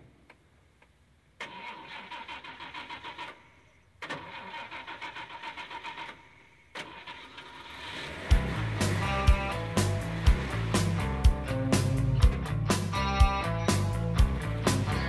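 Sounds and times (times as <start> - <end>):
car engine starter cranking: 1.4 - 12.8.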